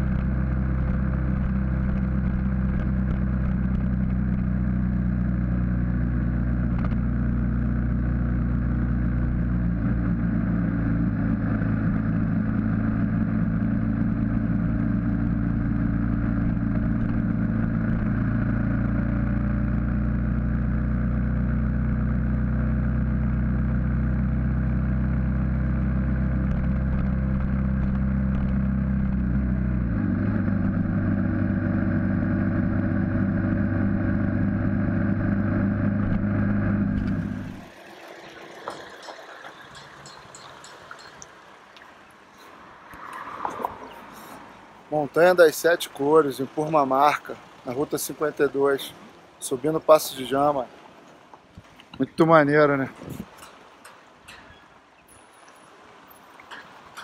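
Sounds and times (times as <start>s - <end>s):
motorcycle engine running: 0.0s - 37.7s.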